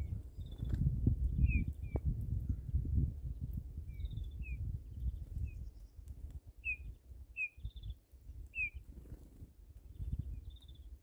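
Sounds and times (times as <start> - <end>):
songbirds chirping: 0.0 - 11.0.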